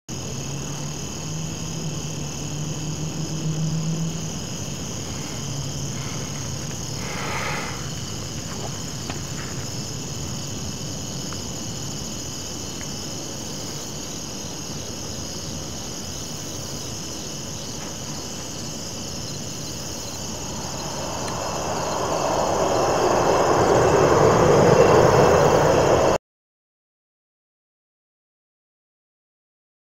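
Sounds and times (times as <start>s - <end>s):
crickets chirping: 0.1s - 26.2s
rushing noise: 2.8s - 10.8s, 18.9s - 26.2s
low hum: 19.3s - 26.2s.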